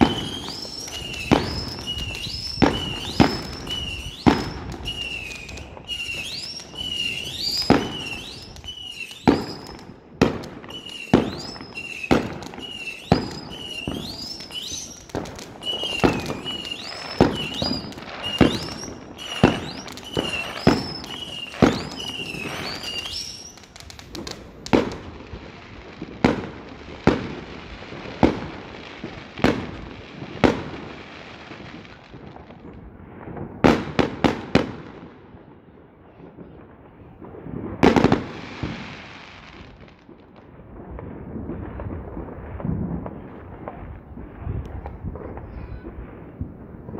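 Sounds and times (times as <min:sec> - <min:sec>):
high rising firework whistle: 0:00.0 - 0:25.1
fireworks bangs and crackles: 0:00.0 - 0:46.9.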